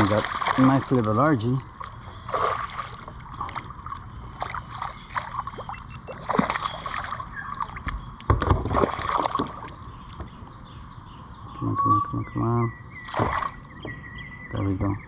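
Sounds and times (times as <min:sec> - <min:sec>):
fish splashing at water surface: 0:00.0 - 0:01.0, 0:01.8 - 0:07.8, 0:08.5 - 0:09.8, 0:13.0 - 0:13.6.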